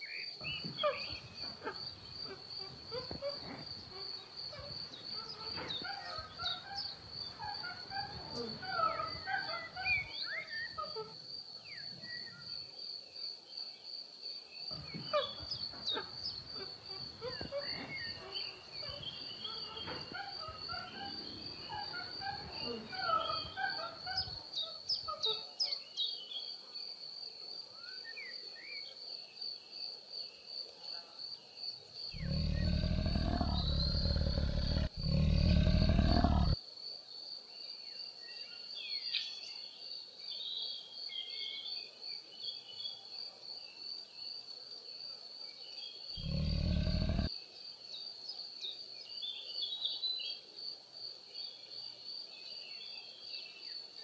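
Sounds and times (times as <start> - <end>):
bird chirps: 0.0 - 11.0, 32.2 - 36.6
deep animal roars: 32.2 - 36.6, 46.2 - 47.3.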